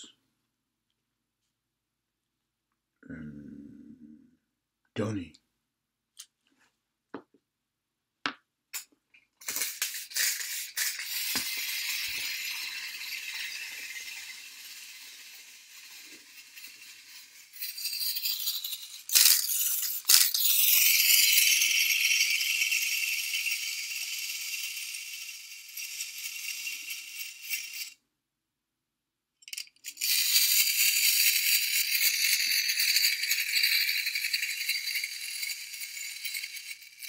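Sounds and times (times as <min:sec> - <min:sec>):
wind-up toy clockwork rattling: 0:09.4 - 0:28.0, 0:29.4 - 0:37.0.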